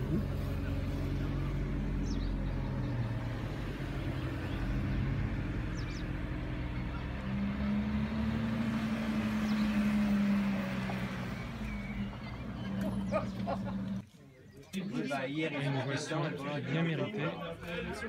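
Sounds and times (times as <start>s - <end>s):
sports cars rolling past: 0.0s - 14.0s.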